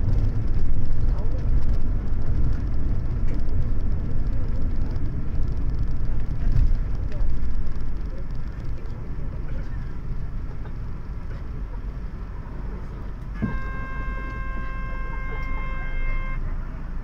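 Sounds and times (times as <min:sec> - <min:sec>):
bus engine idling: 0:00.0 - 0:17.0
thump: 0:13.4 - 0:13.7
buzzer tone: 0:13.4 - 0:16.4.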